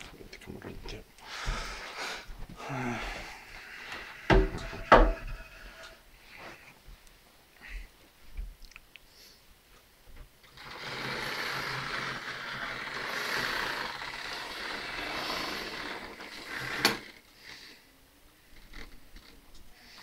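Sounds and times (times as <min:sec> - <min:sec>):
model train motor and wheels: 0:10.5 - 0:17.8.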